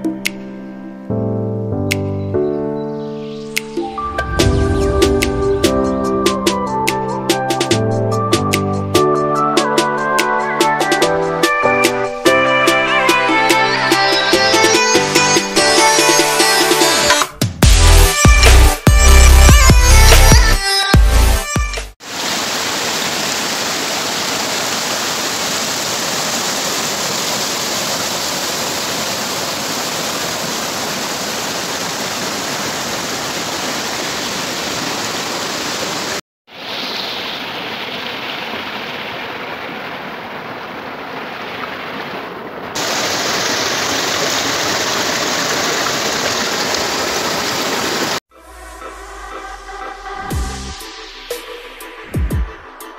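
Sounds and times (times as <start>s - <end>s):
river water rushing over rocks: 22.0s - 48.2s.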